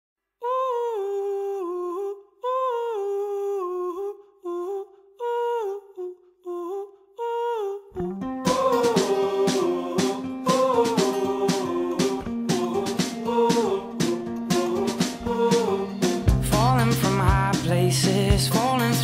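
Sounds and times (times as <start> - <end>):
band with guitar: 8.0 - 19.0
hummed melody: 8.0 - 19.0.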